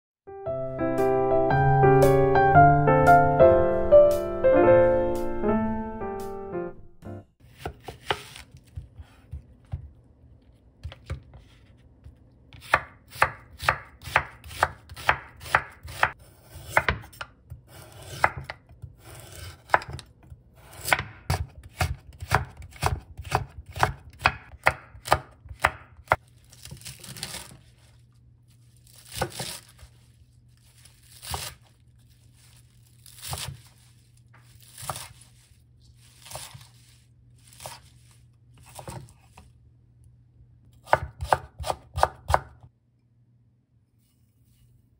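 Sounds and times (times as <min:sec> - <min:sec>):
piano music: 0:00.3 - 0:07.4
knife cutting on wooden board: 0:07.5 - 0:09.9, 0:12.5 - 0:27.6, 0:31.1 - 0:31.7, 0:33.0 - 0:33.8, 0:34.4 - 0:35.4, 0:36.0 - 0:38.0, 0:38.6 - 0:39.4.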